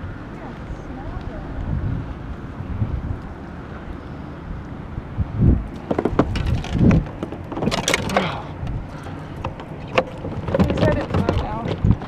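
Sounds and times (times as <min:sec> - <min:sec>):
knocks and thumps in boat: 0:05.7 - 0:12.0.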